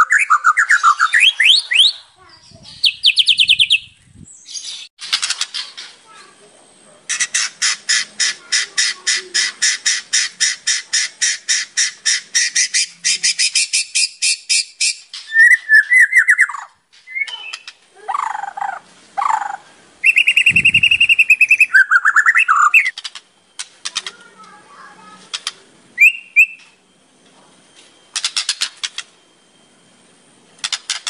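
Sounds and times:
songbird singing trills: 0.0 - 4.9, 7.1 - 26.9.

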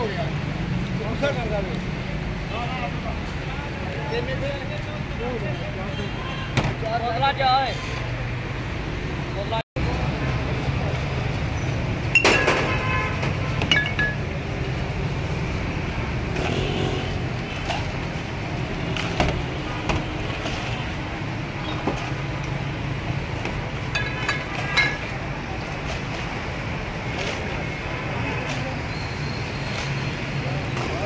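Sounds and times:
street traffic rumble: 0.0 - 31.0
glass bottles clinking: 12.1 - 12.6, 13.6 - 14.3, 23.8 - 25.2.

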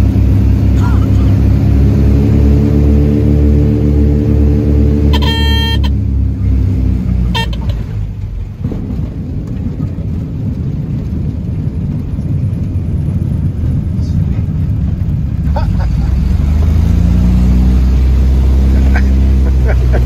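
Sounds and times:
aircraft rolling on runway: 0.0 - 20.0
cockpit warning horn: 4.6 - 6.1, 7.2 - 7.9
short beep: 5.1 - 6.0.

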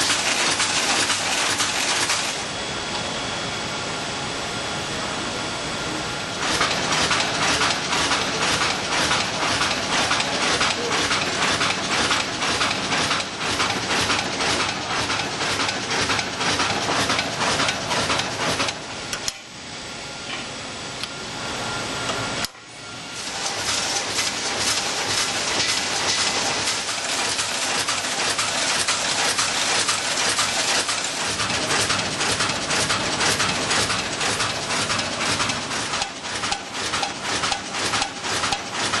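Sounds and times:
packaging machine clattering: 0.0 - 2.4, 6.4 - 18.8, 23.2 - 39.0.

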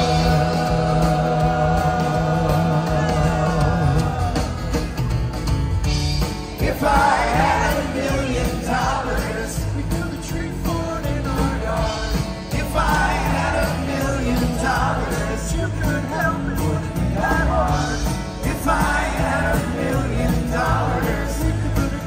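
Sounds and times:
person singing: 0.0 - 5.0
live rock band playing: 0.0 - 22.0.

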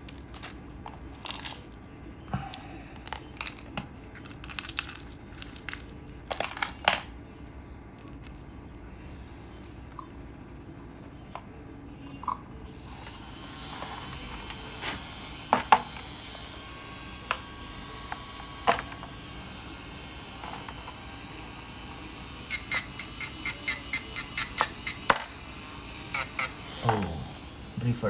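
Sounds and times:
dental handpiece hissing: 12.8 - 28.0.

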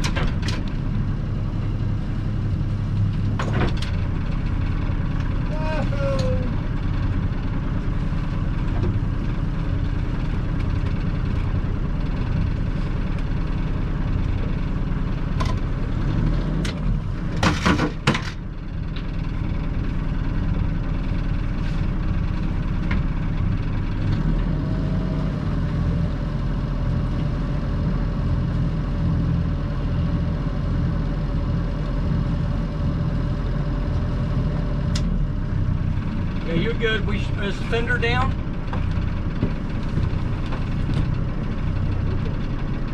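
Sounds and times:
boat engine running at low revs: 0.0 - 42.9
clatter of knocks: 17.4 - 18.4.

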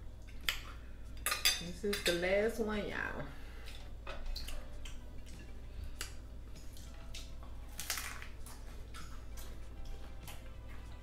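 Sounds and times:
crunching taco shell: 6.8 - 9.1.

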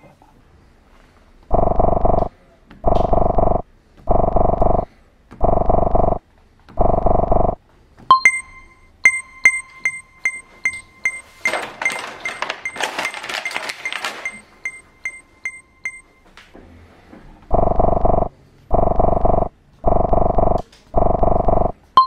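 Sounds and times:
high electronic pings: 6.8 - 11.5, 17.5 - 21.7
plastic blister tray crackling: 11.5 - 14.5.

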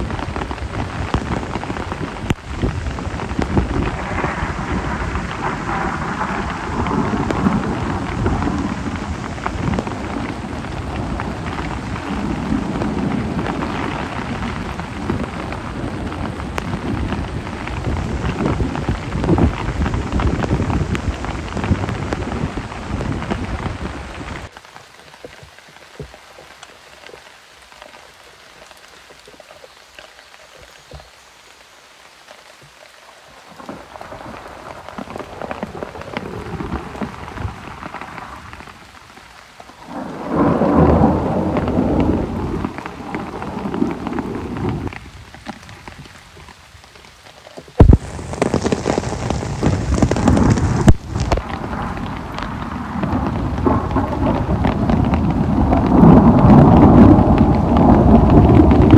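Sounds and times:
heavy rain on plastic tarp: 0.0 - 58.9.

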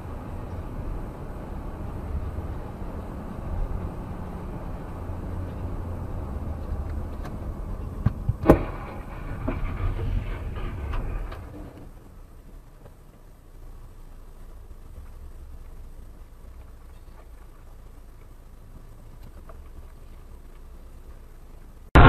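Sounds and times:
car road rumble: 0.0 - 22.0
sharp crash: 8.4 - 11.6.

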